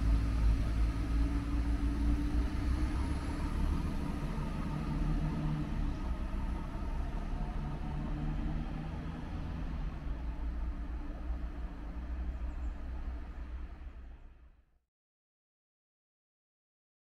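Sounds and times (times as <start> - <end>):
diesel train engine rumble: 0.0 - 4.6.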